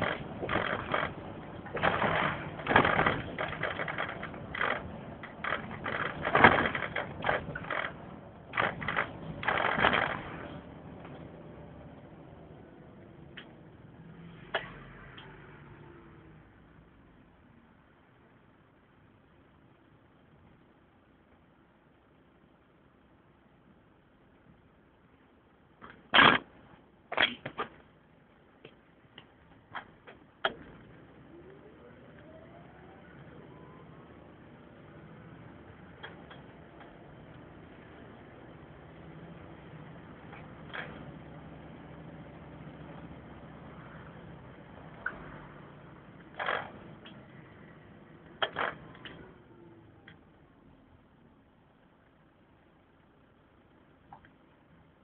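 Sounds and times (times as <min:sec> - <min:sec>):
sharp clicks and knocks: 0:00.0 - 0:11.2, 0:28.6 - 0:30.9, 0:36.0 - 0:37.0, 0:46.2 - 0:47.3, 0:48.3 - 0:49.3
rattling inside moving vehicle: 0:00.0 - 0:13.6
vehicle engine pulling away: 0:13.8 - 0:16.8, 0:30.6 - 0:50.0.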